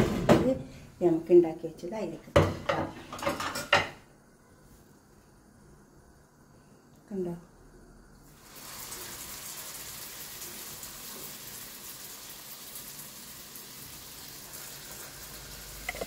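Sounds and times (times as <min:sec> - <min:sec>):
oil sizzling in frying pan: 0:08.2 - 0:16.0.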